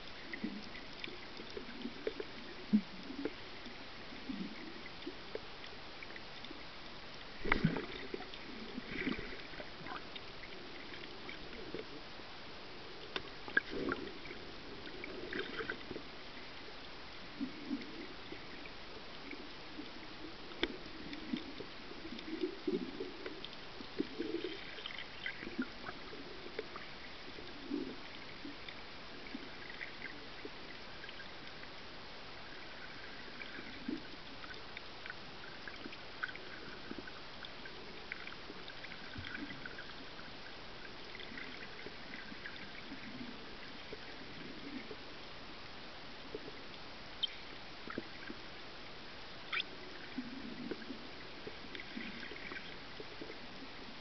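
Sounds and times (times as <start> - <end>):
water gurgling and bubbling: 7.2 - 12.2, 12.8 - 16.6, 17.2 - 31.1, 49.5 - 54.0.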